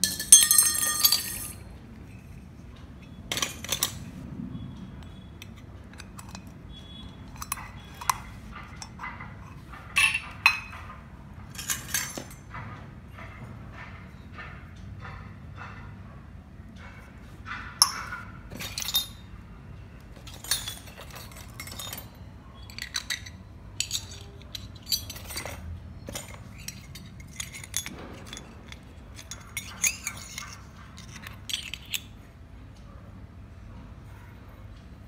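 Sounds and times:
toy kitchenware clinking: 0.0 - 2.4, 3.0 - 4.1, 5.0 - 12.6, 17.8 - 19.3, 20.1 - 32.3.

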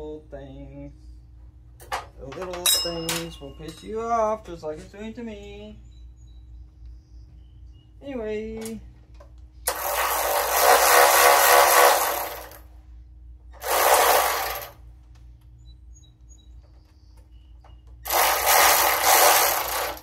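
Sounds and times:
power driver running bolts: 8.5 - 12.7, 13.5 - 14.9, 17.6 - 20.0.

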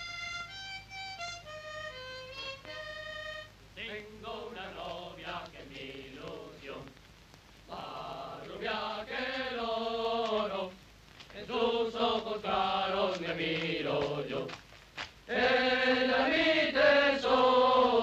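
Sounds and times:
group singing in unison: 3.8 - 7.0, 7.7 - 14.6, 15.3 - 18.0.

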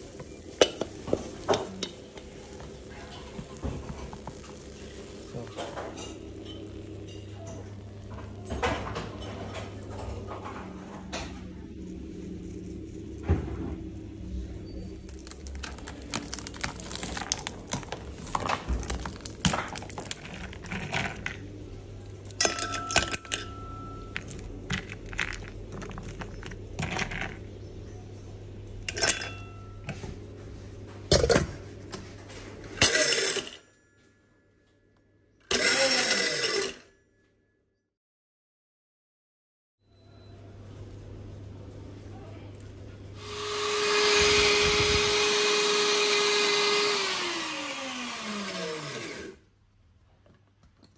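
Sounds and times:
nuts clicking and clinking: 14.9 - 21.4, 22.2 - 27.5
electric grinder running: 35.5 - 36.8, 43.2 - 49.4.

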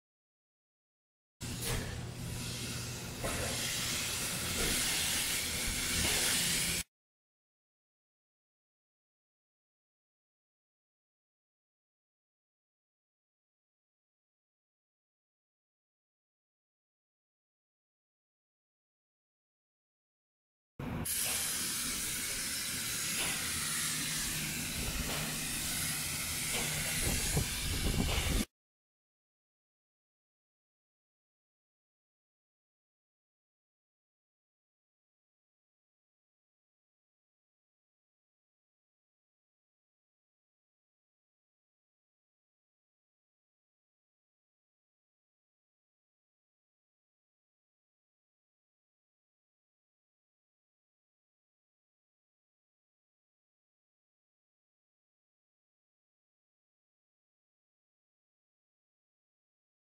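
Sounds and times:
spray gun hissing: 1.6 - 6.9, 21.1 - 28.5.

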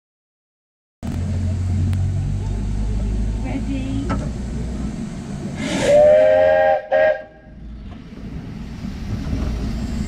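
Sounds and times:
steam whistle blasts: 5.6 - 7.6.

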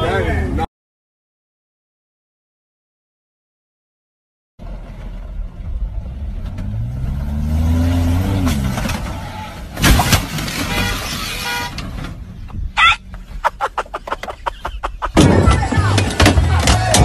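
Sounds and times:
truck engine revving: 4.6 - 12.4
loud thud of truck landing: 9.7 - 11.0, 15.1 - 17.0.

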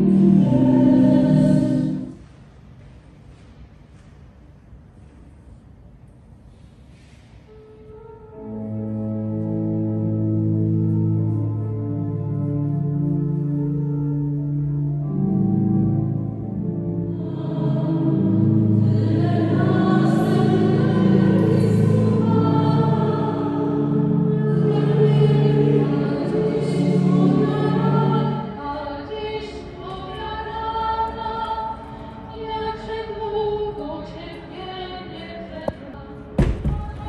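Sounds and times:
choir singing: 0.0 - 2.2, 17.0 - 35.9
sustained low accompanying notes: 7.8 - 28.6.

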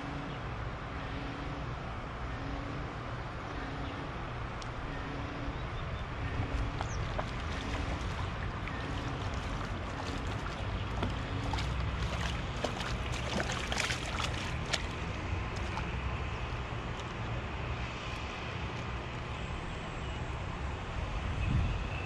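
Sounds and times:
steady low rumble: 1.7 - 20.0
fish splashing in water: 6.6 - 16.4.

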